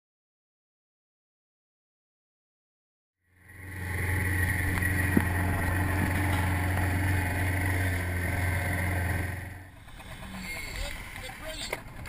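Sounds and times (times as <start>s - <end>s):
outboard motor droning: 3.3s - 12.0s.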